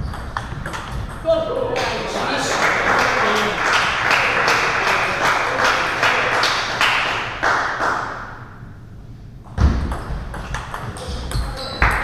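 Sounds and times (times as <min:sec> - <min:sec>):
table tennis ball tapping: 0:00.0 - 0:01.2, 0:09.9 - 0:12.0
steady background noise: 0:00.0 - 0:12.0.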